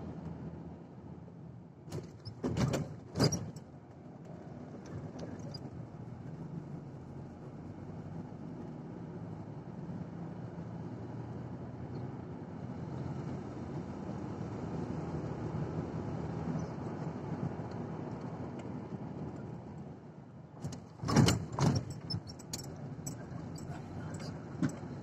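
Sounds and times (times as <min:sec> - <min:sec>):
engine and tyre hum in car: 0:00.0 - 0:25.0.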